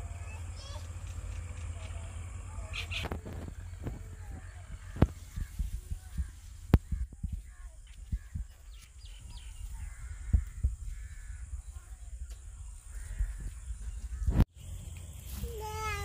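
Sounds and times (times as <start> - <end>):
steady low rumble: 0.0 - 15.2
birds calling faintly: 0.0 - 16.0.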